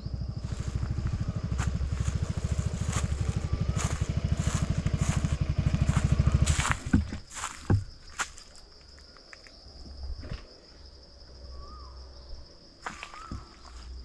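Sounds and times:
high-pitched insect drone: 0.0s - 8.3s
footsteps on dry leaves: 0.4s - 8.6s, 12.8s - 14.0s.

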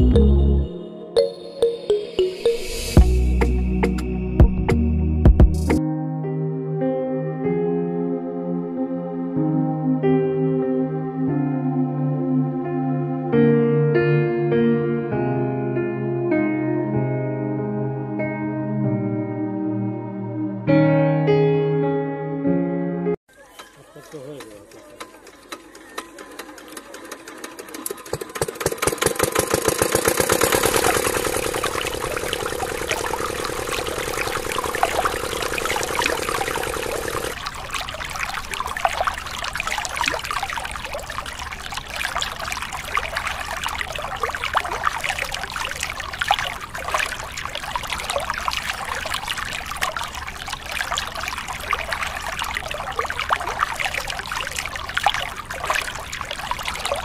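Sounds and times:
water pouring and trickling: 23.3s - 57.0s.

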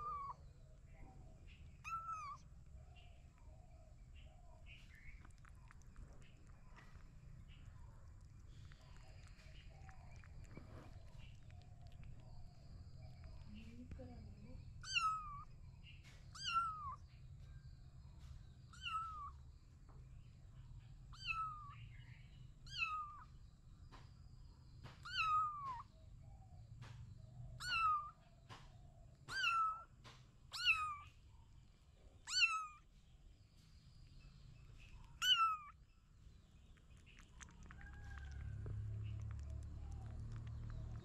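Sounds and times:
kittens mewing: 32.3s - 32.8s, 35.2s - 35.7s.

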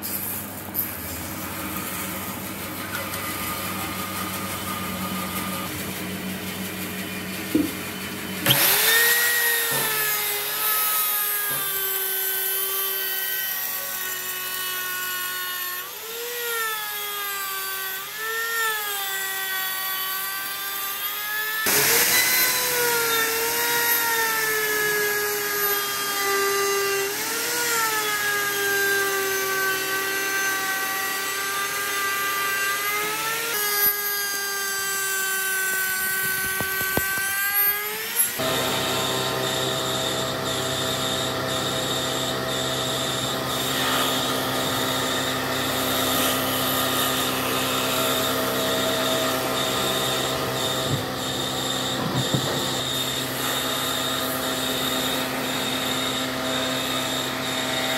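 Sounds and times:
router motor whining: 0.8s - 57.9s.

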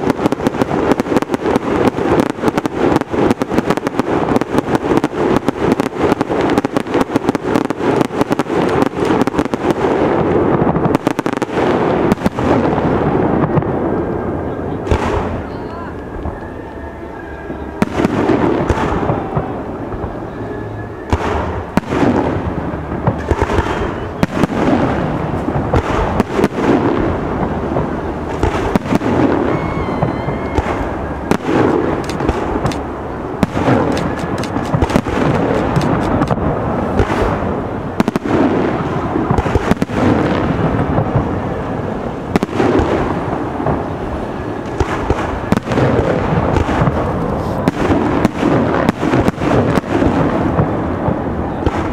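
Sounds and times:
firework shells bursting: 0.0s - 12.7s, 27.7s - 38.5s.

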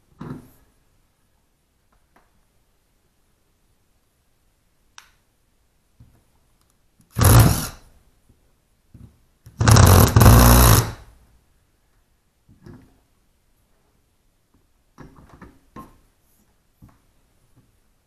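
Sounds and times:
impact driver driving a screw: 7.1s - 7.8s, 9.5s - 11.0s.

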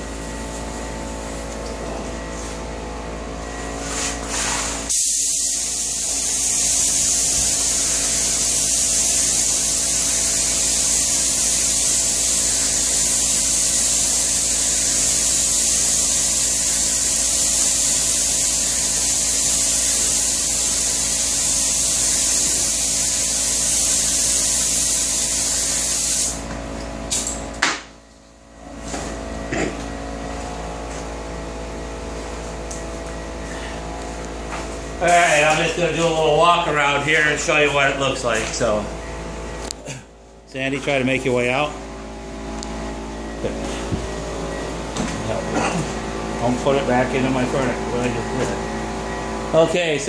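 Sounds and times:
short spray gun blasts: 3.9s - 26.4s
spray gun hissing: 3.9s - 26.4s.

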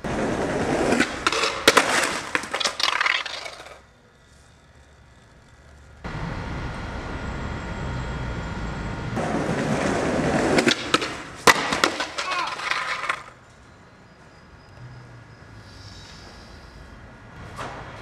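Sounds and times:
skateboard clacks: 0.0s - 3.8s, 9.2s - 13.4s
skateboard wheels rolling on paving: 0.0s - 7.2s, 8.1s - 14.2s
steady low rumble: 5.1s - 9.8s.

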